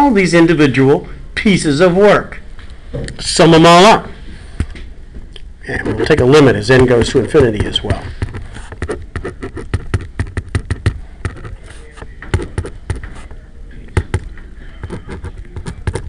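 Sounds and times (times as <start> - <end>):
pen writing on paper: 5.8 - 13.3, 13.9 - 16.0.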